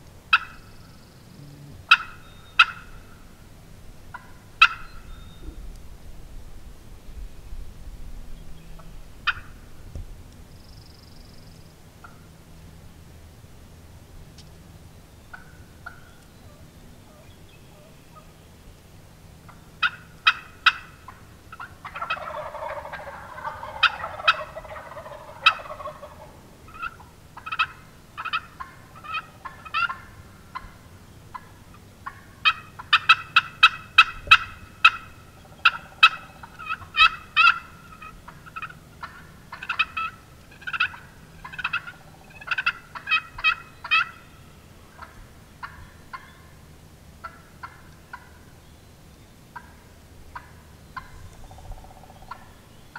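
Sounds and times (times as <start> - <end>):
turkey gobbling: 0.3 - 3.3, 4.1 - 5.7, 8.8 - 9.7, 12.0 - 12.2, 15.3 - 18.3, 19.5 - 46.6, 47.2 - 48.5, 49.6 - 52.6
turkeys yelping: 0.3 - 3.4, 4.1 - 5.7, 8.8 - 9.7, 15.3 - 18.3, 19.5 - 46.6, 47.2 - 48.5, 49.6 - 52.6.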